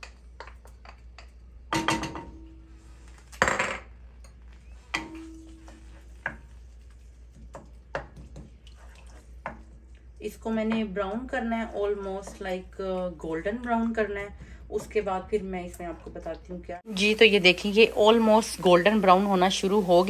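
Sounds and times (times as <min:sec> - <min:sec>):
wooden spoon knocking on pot: 0:10.5 - 0:12.6.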